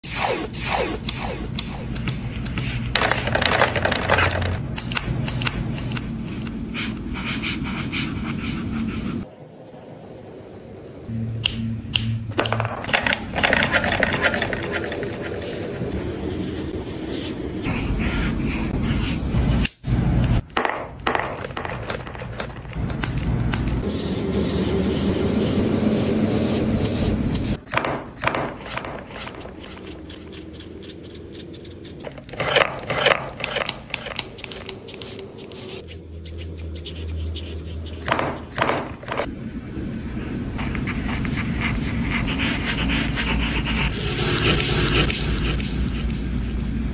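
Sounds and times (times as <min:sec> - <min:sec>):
marker nibs rubbing on paper: 0:05.5 - 0:09.3, 0:13.0 - 0:19.8, 0:28.5 - 0:39.3, 0:40.6 - 0:46.8
pencil scratching on paper: 0:05.5 - 0:09.3, 0:13.0 - 0:20.4, 0:21.6 - 0:27.6, 0:28.2 - 0:39.3, 0:40.6 - 0:46.9.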